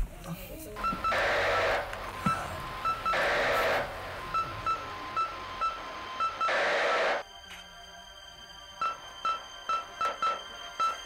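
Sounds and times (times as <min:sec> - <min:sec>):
radio static bursts: 0:00.8 - 0:07.2.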